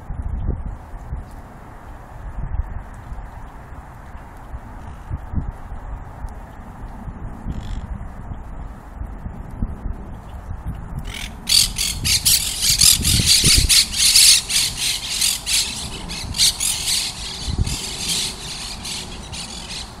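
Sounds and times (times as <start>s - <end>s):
parakeets screeching: 11.1s - 20.0s.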